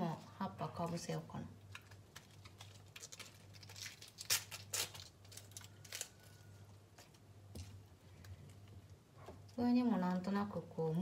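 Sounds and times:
cabbage leaves tearing: 1.7 - 6.5.

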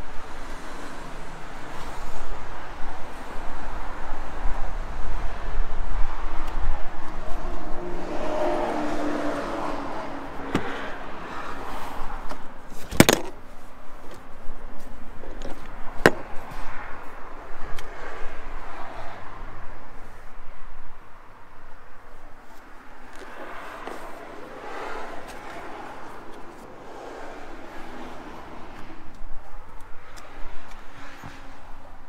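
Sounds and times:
outdoor background noise: 0.0 - 32.0.

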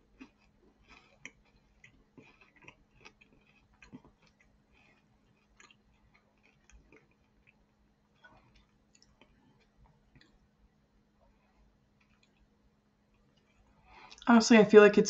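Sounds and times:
person chewing pastry: 0.0 - 14.2.

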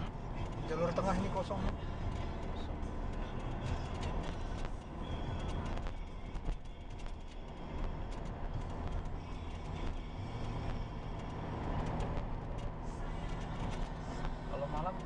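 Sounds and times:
car engine and tyre rumble: 0.0 - 15.0
light clicks and rattles: 0.4 - 15.0.

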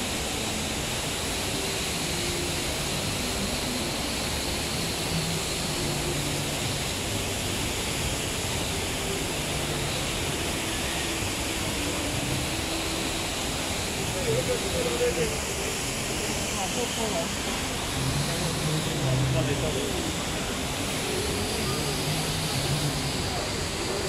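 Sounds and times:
waterfall roaring: 0.0 - 24.0
crowd murmuring: 9.0 - 24.0.

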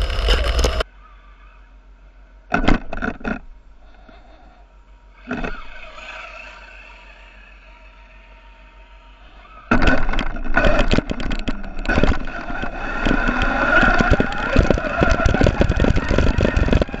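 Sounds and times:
motor whine: 0.0 - 0.8, 5.1 - 17.0
rattling road and tyre noise: 0.0 - 4.3, 5.0 - 17.0.

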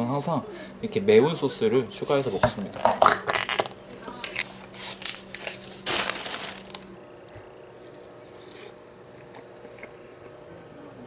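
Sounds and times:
plastic packaging crinkling: 2.6 - 6.9.

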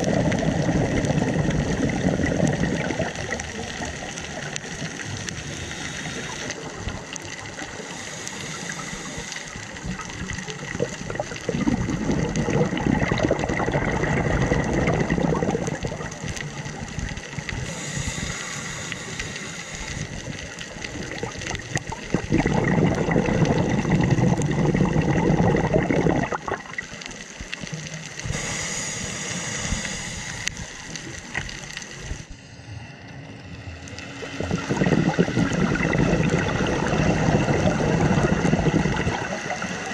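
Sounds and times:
burble of exhaled bubbles: 0.0 - 18.2, 20.0 - 28.4, 33.8 - 39.9
regulator hissing inhale: 5.3 - 6.8, 7.7 - 9.8, 17.6 - 20.6, 28.2 - 32.8.

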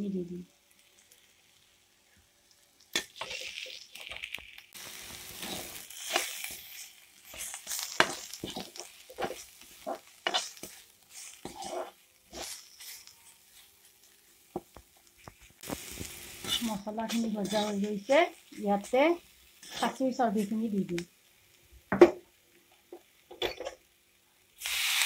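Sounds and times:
spices sizzling in oil: 0.0 - 25.0
metal spatula scraping a wok: 3.0 - 13.7, 15.6 - 20.5.

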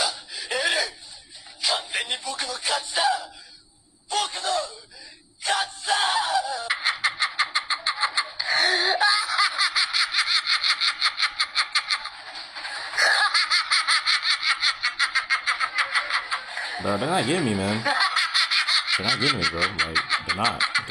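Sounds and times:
men cackling evil laughs: 6.7 - 17.0, 17.6 - 20.9.

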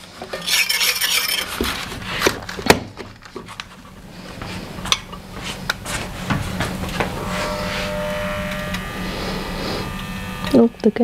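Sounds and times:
metal spoon scraping saucepan: 0.3 - 1.6.

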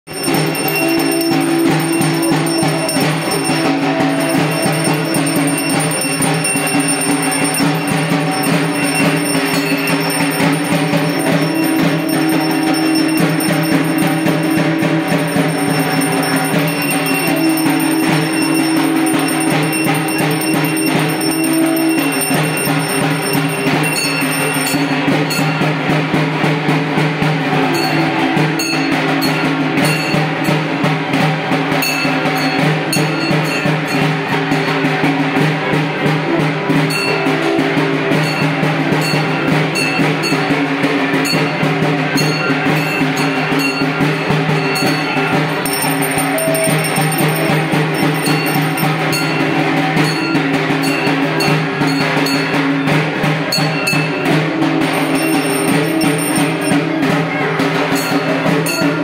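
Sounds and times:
long held tones: 0.1 - 25.0, 54.0 - 57.2
bells ringing: 0.1 - 59.0
fast dense drumming: 0.1 - 59.0.

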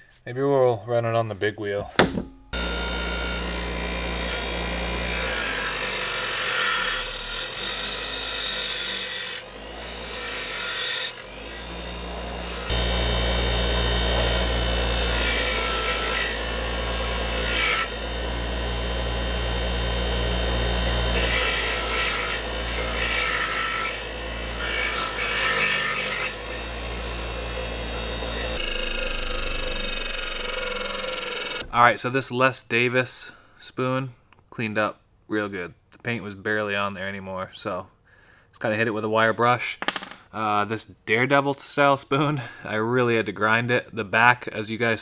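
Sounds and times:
bench grinder motor hum: 2.5 - 31.7
metal grinding hiss: 2.6 - 31.6.

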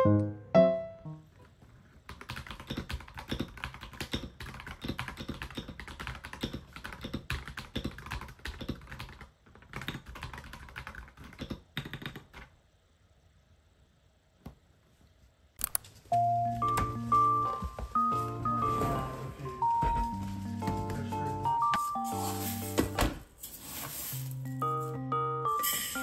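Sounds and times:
mechanical keyboard typing: 2.1 - 12.5.

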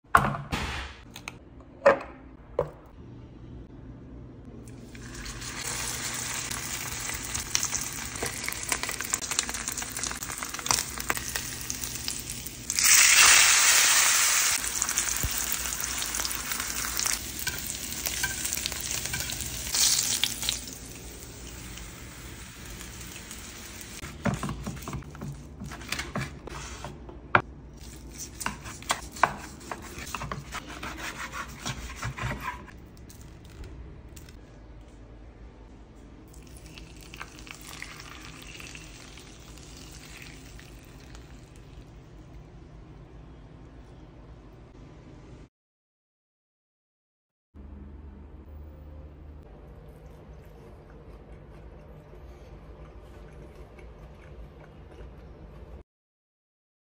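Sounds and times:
steak sizzling in a skillet: 5.4 - 24.0.

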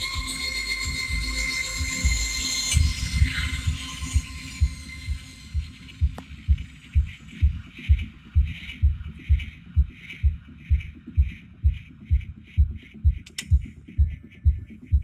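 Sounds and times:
electronic music with deep pulse: 0.0 - 15.0
sharp click: 13.2 - 13.6.

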